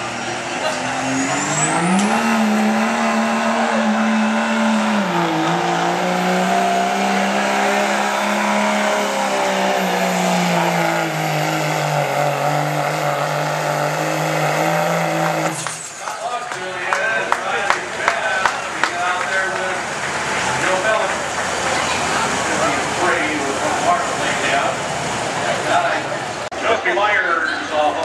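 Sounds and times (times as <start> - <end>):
diesel truck engine at full throttle: 0.0 - 26.9.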